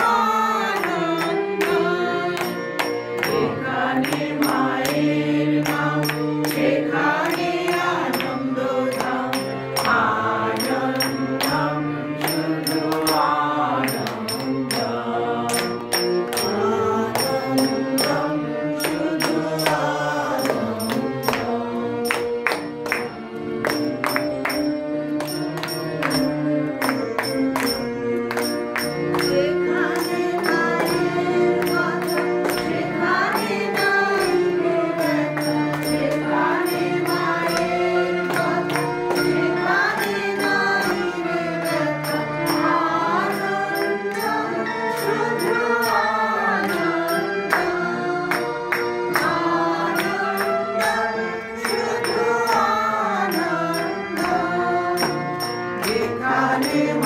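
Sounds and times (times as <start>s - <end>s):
group devotional singing: 0.0s - 57.0s
hand cymbals striking: 10.6s - 23.0s, 23.7s - 34.4s.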